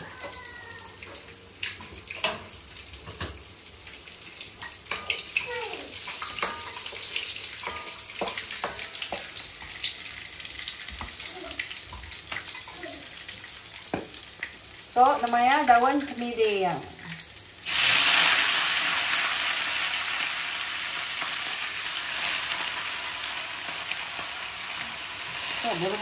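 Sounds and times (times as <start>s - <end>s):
food sizzling in hot oil: 0.0s - 26.0s
utensil clinking against pan: 7.6s - 9.3s.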